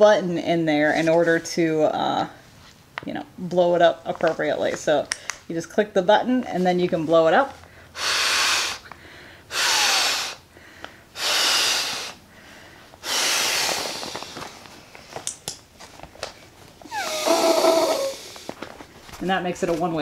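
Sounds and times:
quiet inhalations: 7.6s - 15.2s, 16.9s - 18.6s
breaths blown into pillow valve: 7.9s - 10.5s, 11.1s - 14.7s, 16.9s - 18.6s.

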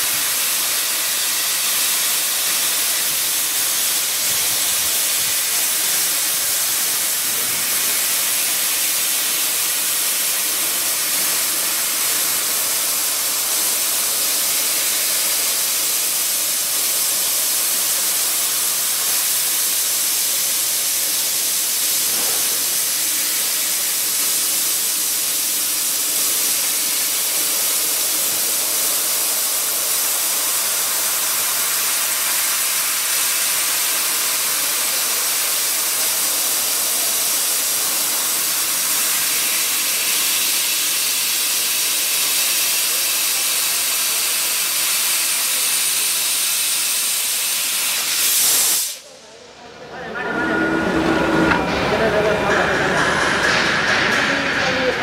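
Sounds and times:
laser cutter gas jet hissing: 0.0s - 49.1s.

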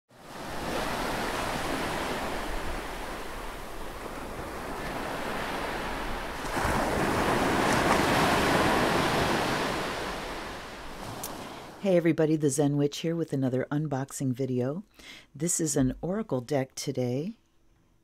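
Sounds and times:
ocean waves breaking: 0.1s - 11.8s.

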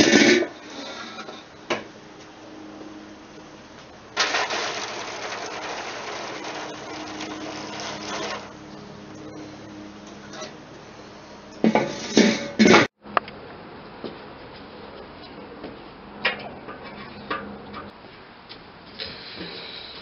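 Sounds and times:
boiling water pouring and splashing: 4.2s - 8.6s.

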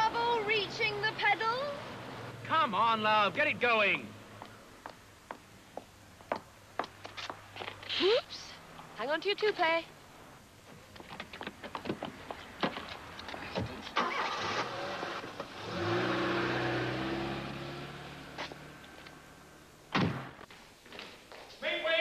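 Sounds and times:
car engine starting: 13.7s - 20.3s
sharp knock: 19.9s - 20.3s.

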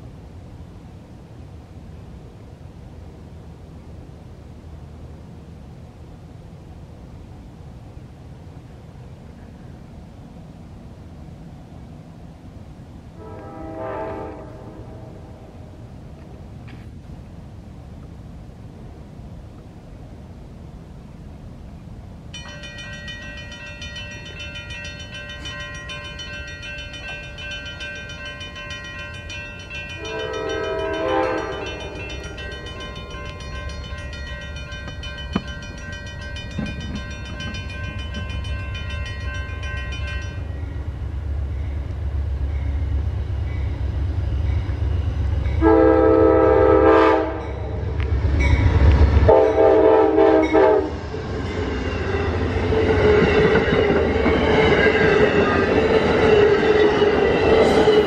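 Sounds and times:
train wheels on rails: 5.7s - 58.0s
train horn blasts: 13.2s - 15.6s, 29.9s - 32.4s, 45.6s - 47.7s, 49.3s - 51.0s
crossing bell ringing: 22.3s - 47.8s, 48.4s - 58.0s.

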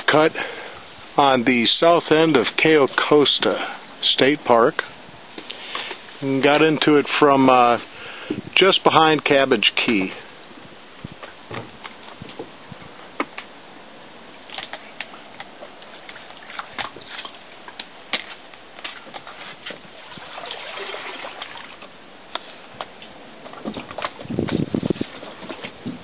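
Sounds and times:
paddle splashing water: 14.2s - 24.4s
water trickling off paddle: 14.2s - 24.4s.

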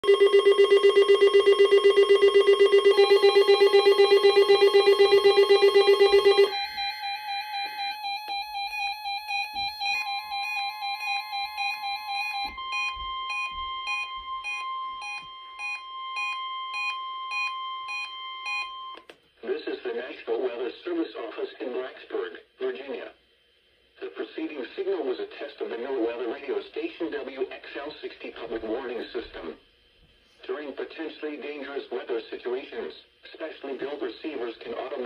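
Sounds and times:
warbling alert tone: 0.0s - 14.6s
fast-pulsing buzzer tone: 0.0s - 16.3s
overlapping beep patterns: 0.0s - 19.0s.

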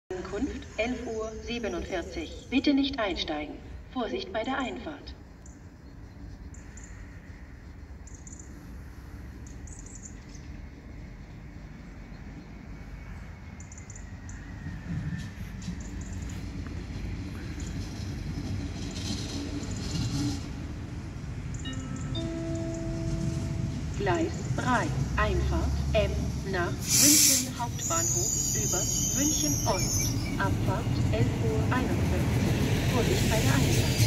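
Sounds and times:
train rumbling: 0.1s - 34.0s
bird chirps: 5.4s - 8.6s, 9.4s - 10.6s
multi-tone announcement chime: 21.6s - 25.8s.

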